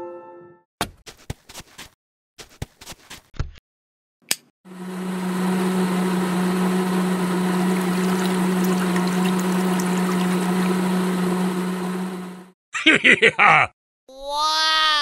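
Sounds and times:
click: 4.2 - 4.5
small water pump humming: 4.7 - 12.5
juice pouring into a glass: 5.9 - 12.4.

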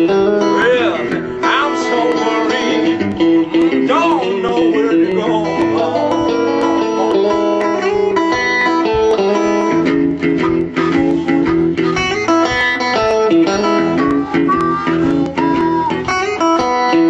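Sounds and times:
blues guitar playing: 0.0 - 17.0.

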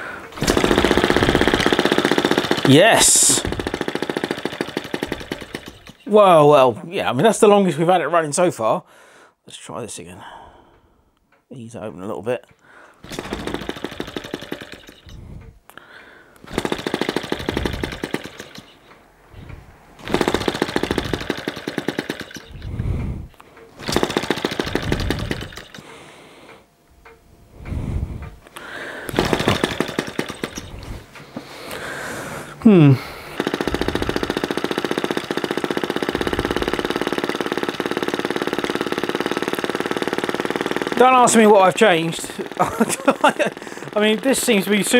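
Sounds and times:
model engine popping: 0.3 - 6.1, 16.4 - 18.8, 20.0 - 22.7, 23.8 - 25.8, 33.4 - 44.9.

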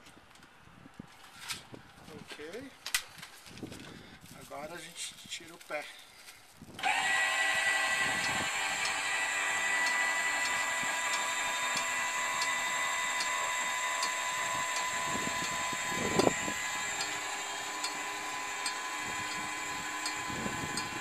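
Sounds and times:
small electric motor whining: 6.7 - 21.0.

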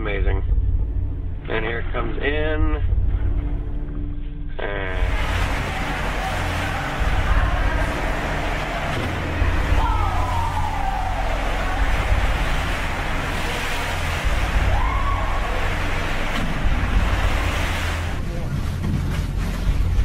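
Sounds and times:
deep rumble: 0.0 - 20.0
pool water surging and splashing: 4.9 - 20.0
wailing tones: 5.1 - 16.4.

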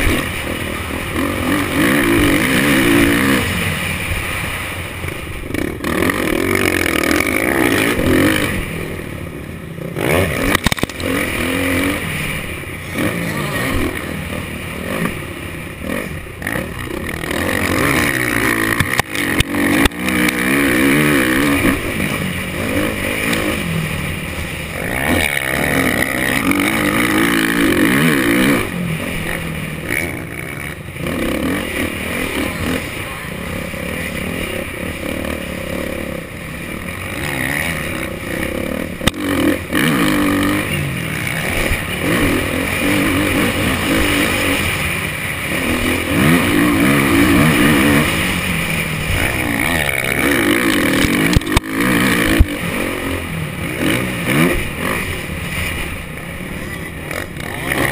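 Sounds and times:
motocross bike engine revving: 0.0 - 57.9
sharp thumps: 10.2 - 15.2.

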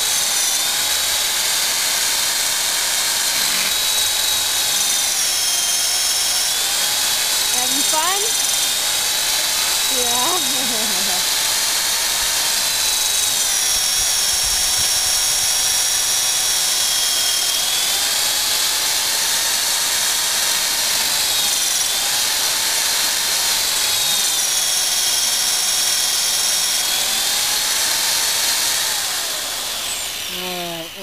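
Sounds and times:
electric drill whining: 0.0 - 31.0.

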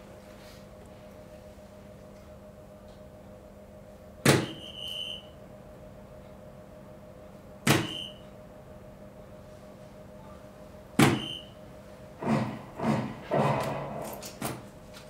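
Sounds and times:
steady machine hum: 0.0 - 15.0
short electronic beep: 7.8 - 8.2, 11.2 - 11.5.

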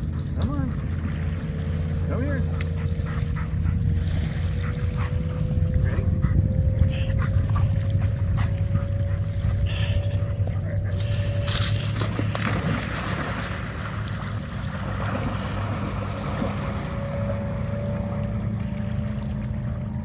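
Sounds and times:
steady low rumble: 0.0 - 20.0
water sloshing: 0.0 - 20.0
dog splashing into water: 10.9 - 17.2.

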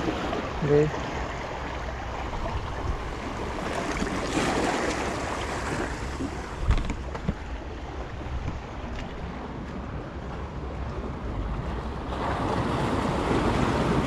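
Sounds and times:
waves washing against rocks: 0.0 - 14.0
wind on microphone: 1.6 - 14.0.

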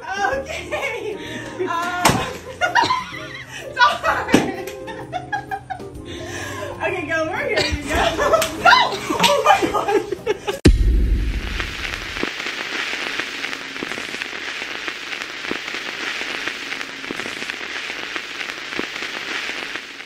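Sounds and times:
steady crackling hiss: 0.1 - 20.0
low rumble: 10.6 - 12.2.

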